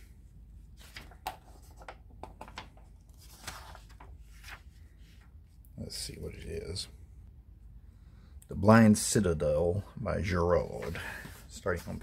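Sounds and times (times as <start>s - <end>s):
magazine pages turning: 0.6s - 5.4s.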